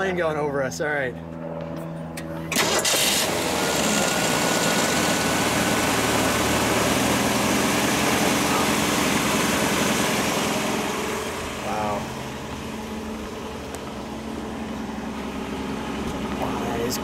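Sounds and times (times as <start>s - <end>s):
car engine idling: 0.0s - 17.0s
starter cranking engine: 2.5s - 10.5s.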